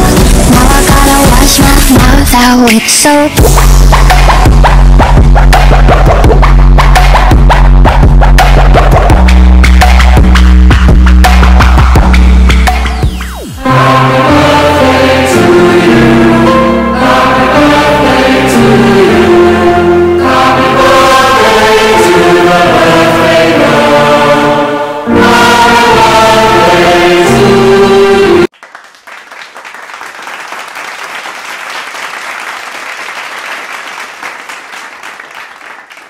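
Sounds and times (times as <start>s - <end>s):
choir singing with music: 0.0s - 2.3s, 13.0s - 28.5s
applause: 28.5s - 36.0s.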